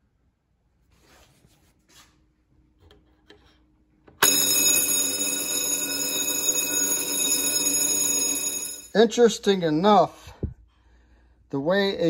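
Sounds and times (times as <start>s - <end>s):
fire alarm bell ringing: 4.2s - 9.0s.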